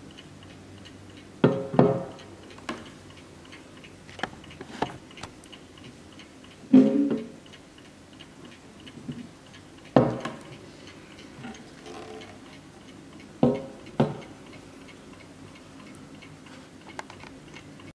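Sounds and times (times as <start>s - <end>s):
clock ticking: 0.0s - 17.9s
knocks handling clock: 9.9s - 10.4s.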